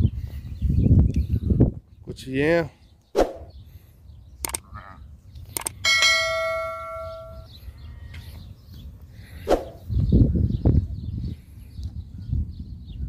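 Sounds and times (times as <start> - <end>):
sharp clicks: 4.4 - 4.6, 5.4 - 5.8
bell chime: 5.8 - 7.5.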